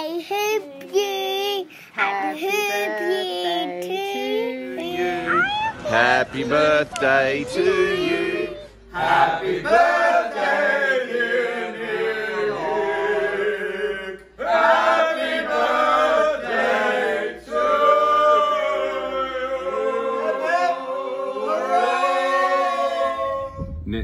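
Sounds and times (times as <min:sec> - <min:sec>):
men singing together: 0:04.4 - 0:23.5.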